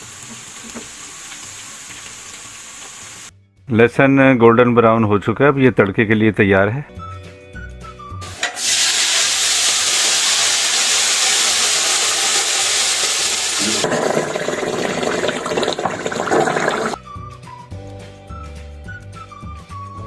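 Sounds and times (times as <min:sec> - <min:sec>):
hot oil sizzling: 0:00.0 - 0:03.3, 0:08.2 - 0:17.0.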